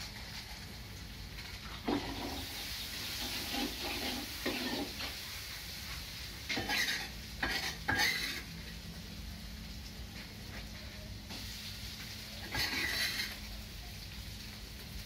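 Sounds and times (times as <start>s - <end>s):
sizzling in a wok: 0.0s - 15.0s
utensil scraping cookware: 3.1s - 5.1s, 6.5s - 8.5s, 12.4s - 13.5s.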